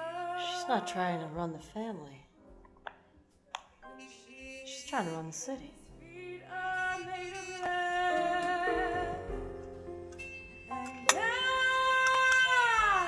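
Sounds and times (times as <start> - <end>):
voice singing with vibrato: 0.0 - 1.4, 4.0 - 5.4, 6.0 - 9.3
film score music: 0.0 - 13.0.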